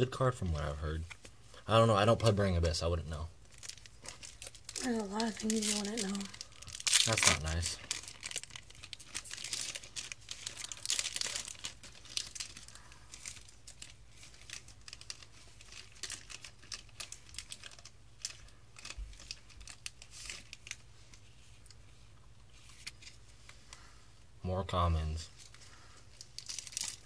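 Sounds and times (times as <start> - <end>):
cards being sorted by hand: 2.0 - 2.9
foil wrapper crinkling: 3.4 - 21.8, 25.4 - 27.0.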